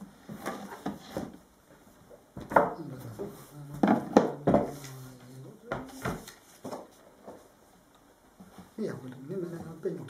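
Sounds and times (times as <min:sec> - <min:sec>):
book covers knocking on wooden table: 0:03.8 - 0:04.8.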